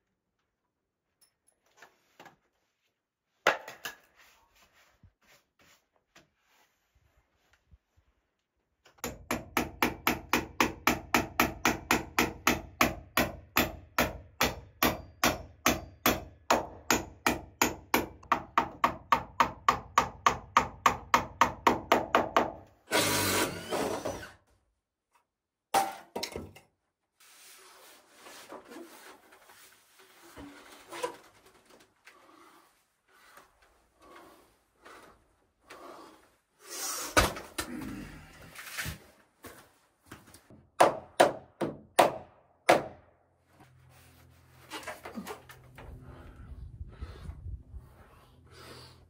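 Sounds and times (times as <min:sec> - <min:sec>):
hammer driving nails into wood: 0:09.0 - 0:24.3, 0:40.8 - 0:43.0
faint rustling and creaks: 0:27.8 - 0:36.4.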